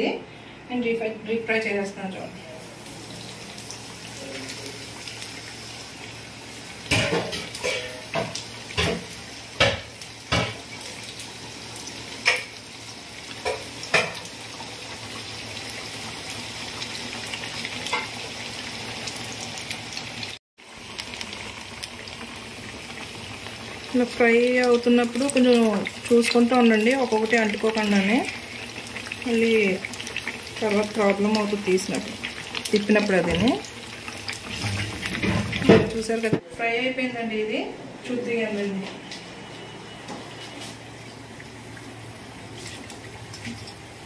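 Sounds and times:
food deep-frying in hot oil: 1.0 - 36.4, 40.4 - 44.0.

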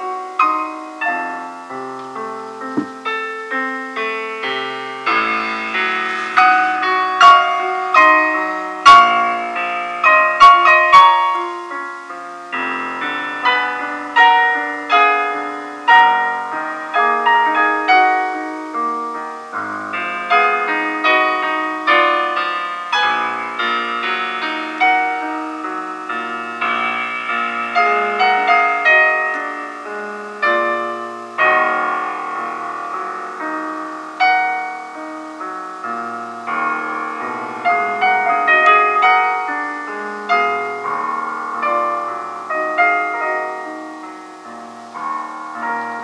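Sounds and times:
solo piano classical piece: 0.0 - 46.0.

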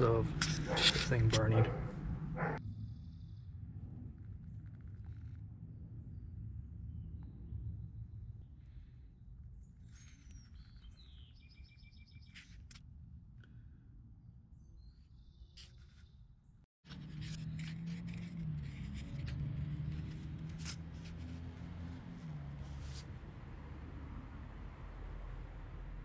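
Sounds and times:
low hum: 0.0 - 10.4.

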